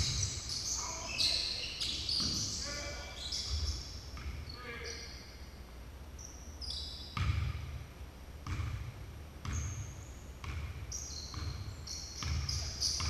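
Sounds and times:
sneakers squeaking: 0:00.0 - 0:05.4, 0:06.2 - 0:07.8, 0:08.4 - 0:13.0
basketball bouncing on hardwood: 0:08.4 - 0:09.7, 0:10.4 - 0:13.0.

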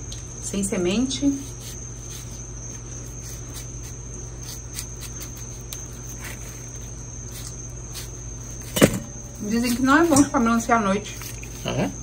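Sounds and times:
knife cutting watermelon: 0:03.0 - 0:10.5.

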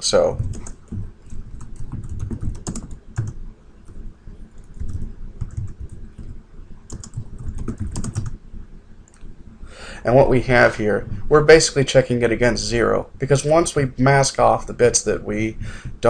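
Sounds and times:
typing on computer keyboard: 0:00.4 - 0:03.4, 0:04.6 - 0:06.3, 0:06.9 - 0:08.4.

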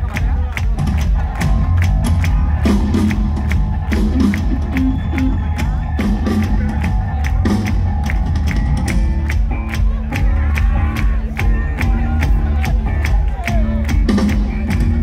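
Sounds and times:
rock band playing: 0:00.2 - 0:15.0
drum hits: 0:03.9 - 0:06.7.

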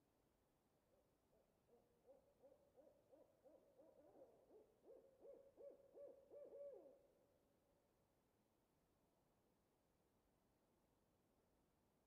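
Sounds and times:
owl hooting: 0:02.1 - 0:07.0.

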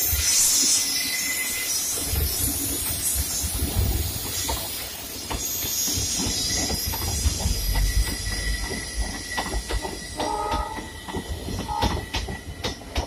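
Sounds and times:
train rumble: 0:00.0 - 0:13.0
wheels clattering over rail joints: 0:02.1 - 0:13.0.

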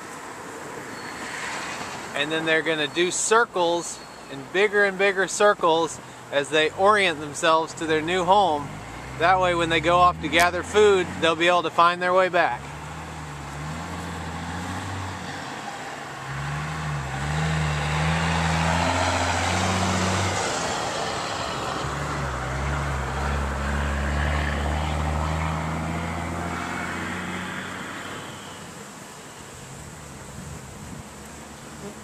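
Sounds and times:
vehicle engine passing by: 0:06.6 - 0:28.9.

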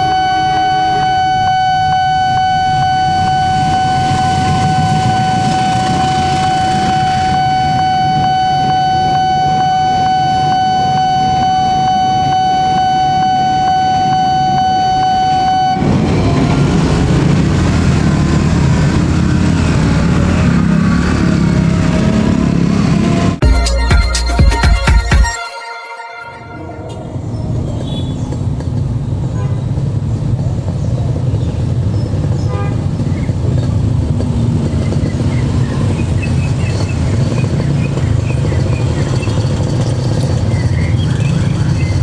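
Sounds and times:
level crossing alarm tone: 0:00.0 - 0:16.0, 0:23.4 - 0:27.6
train engine noise: 0:00.0 - 0:23.4, 0:26.6 - 0:42.0
train rumbling past: 0:02.6 - 0:08.1, 0:13.2 - 0:23.4, 0:26.6 - 0:42.0.

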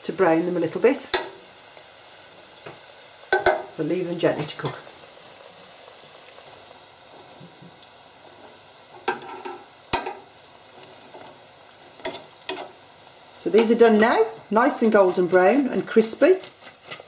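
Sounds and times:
oil sizzling in deep fryer: 0:00.0 - 0:17.0.

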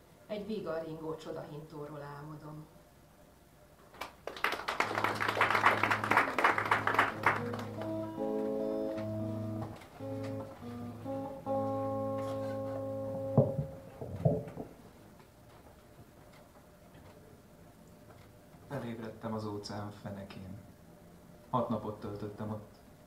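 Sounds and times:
audience applause: 0:04.0 - 0:08.5
instrumental music of held notes: 0:05.0 - 0:14.0.

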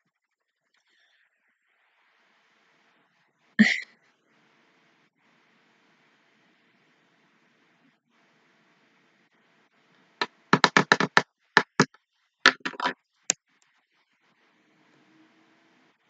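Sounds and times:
sharp clicks and knocks: 0:10.6 - 0:13.0.

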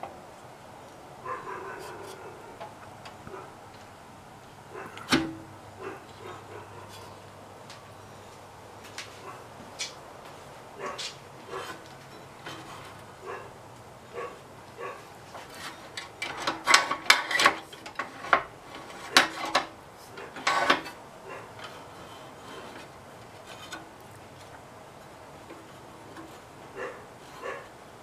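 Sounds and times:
hands working a belt on a pulley: 0:15.4 - 0:27.7.

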